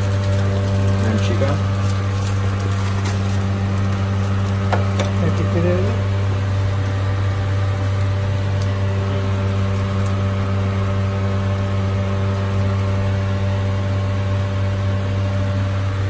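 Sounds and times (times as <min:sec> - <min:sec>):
kitchen machine hum: 0:00.0 - 0:16.0.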